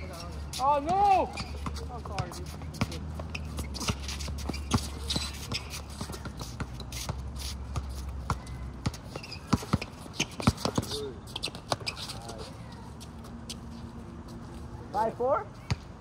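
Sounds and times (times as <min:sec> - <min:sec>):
basketball bouncing on asphalt: 0:00.1 - 0:12.8, 0:15.6 - 0:16.0
sneakers scuffing: 0:00.5 - 0:14.7.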